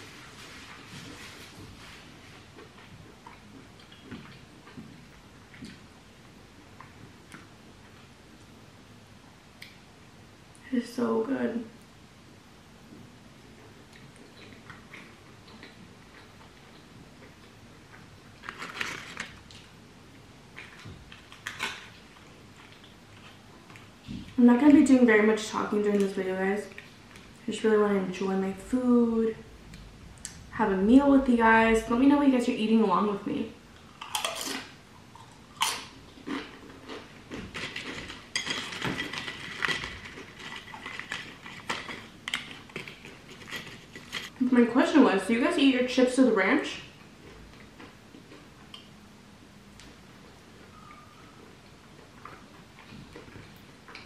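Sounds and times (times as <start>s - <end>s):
chewing: 13.6s - 19.6s, 33.9s - 44.3s, 47.0s - 48.9s, 49.8s - 54.0s
crackly eating clicks: 33.9s - 44.3s.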